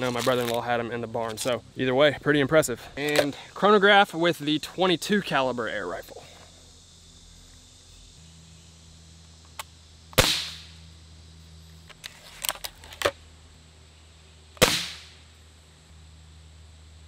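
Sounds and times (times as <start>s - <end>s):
air rifle shot: 10.1s - 10.8s, 14.6s - 15.2s.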